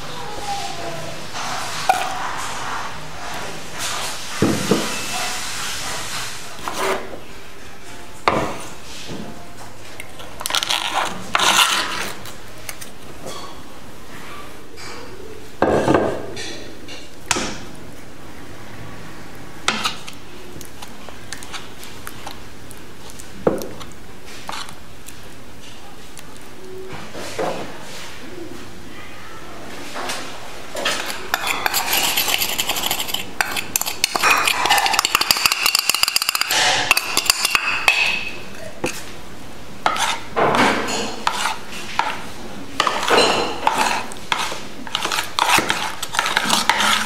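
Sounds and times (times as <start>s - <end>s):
knife on wooden cutting board: 30.8s - 35.0s, 39.9s - 42.2s, 42.8s - 47.0s
spoon against ceramic bowl: 30.9s - 39.0s, 42.8s - 47.0s.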